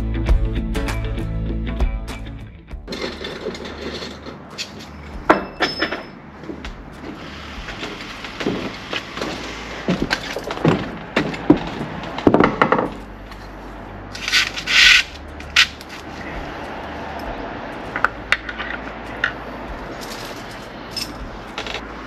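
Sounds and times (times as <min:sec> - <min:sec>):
plastic fixings rubbing and clicking: 0:02.9 - 0:05.1, 0:14.1 - 0:16.2
footsteps on wooden planks: 0:06.4 - 0:13.0
short scraping rub: 0:14.1 - 0:16.4.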